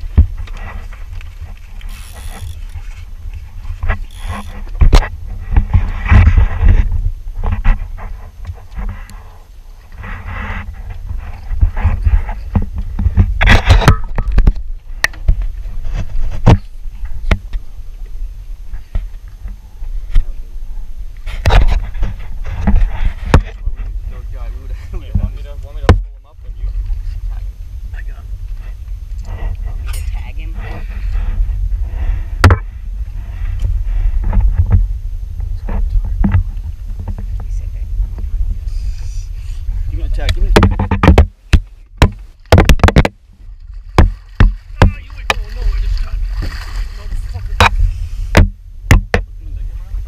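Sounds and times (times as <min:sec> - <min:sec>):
wind buffeting microphone: 0:00.0 - 0:50.0
scraping rattle: 0:03.7 - 0:14.6
gear knocking against hull: 0:32.4 - 0:32.7, 0:40.2 - 0:43.3, 0:47.4 - 0:49.3
knocks: 0:40.6 - 0:43.2.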